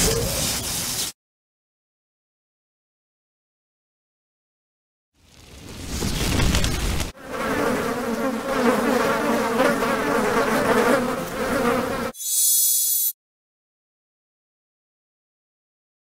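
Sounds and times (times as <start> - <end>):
dense insect-like buzzing: 7.2 - 12.7.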